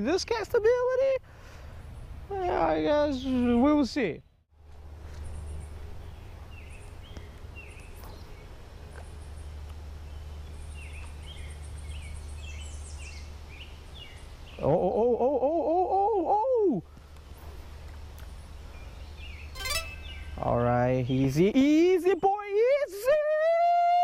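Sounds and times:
birds chirping: 18.8s - 22.4s.

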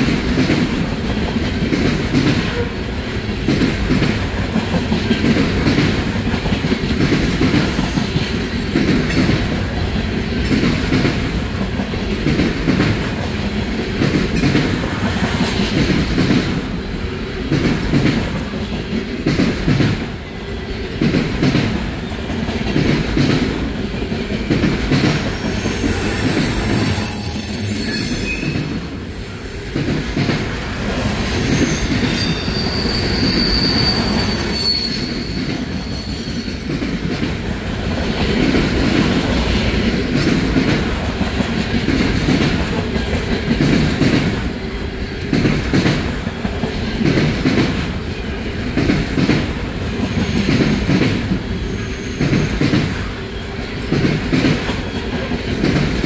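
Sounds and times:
freight train wheels rumbling: 0.0s - 56.0s
high-pitched wheel squeal: 25.3s - 36.8s.

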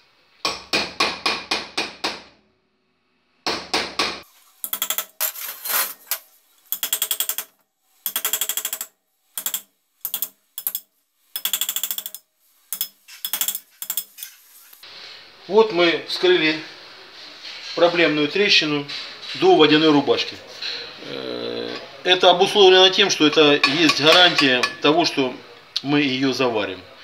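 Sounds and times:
hammer tapping chisel into metal: 3.5s - 5.2s, 6.7s - 14.2s, 23.0s - 24.8s.

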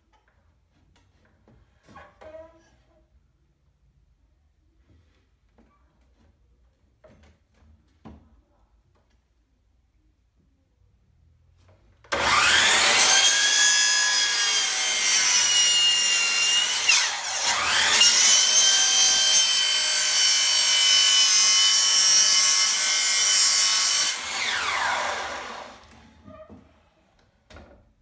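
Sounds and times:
miter saw cutting wood: 12.1s - 26.0s.

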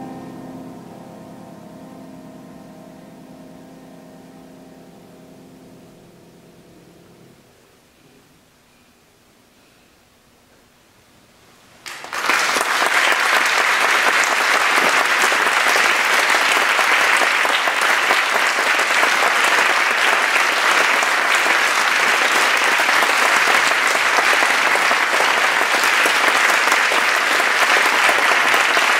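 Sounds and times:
audience applauding: 11.8s - 28.9s.

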